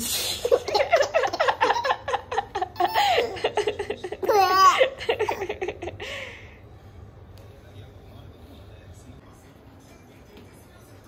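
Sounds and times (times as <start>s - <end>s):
baby giggling and laughing: 0.4s - 5.9s.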